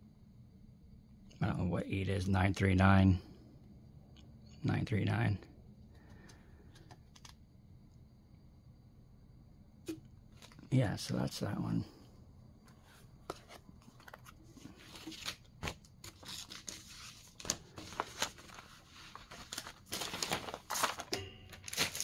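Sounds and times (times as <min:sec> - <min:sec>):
packaging rustle: 0:13.3 - 0:22.0
plastic packaging crinkling: 0:13.9 - 0:22.0.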